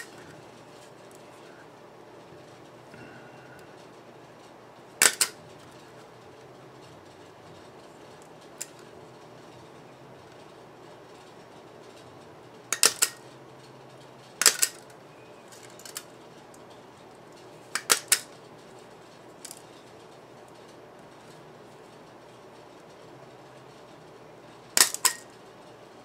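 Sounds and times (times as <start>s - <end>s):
punch pliers clicking through metal: 5.0s - 5.4s, 12.8s - 13.2s, 14.4s - 14.8s.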